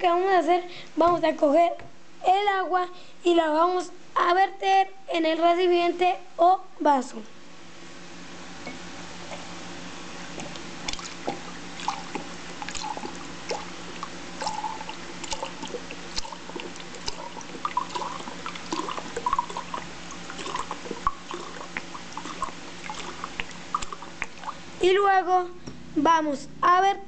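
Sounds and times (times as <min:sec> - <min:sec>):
water dripping: 0:10.2 - 0:24.6
water poured into a glass: 0:10.9 - 0:24.5.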